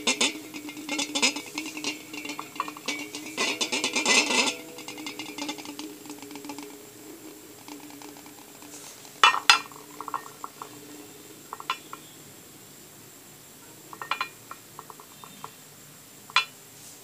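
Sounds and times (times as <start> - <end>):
dish knocking against metal: 0.0 - 12.1
dish clinking: 0.0 - 12.2, 13.6 - 15.6.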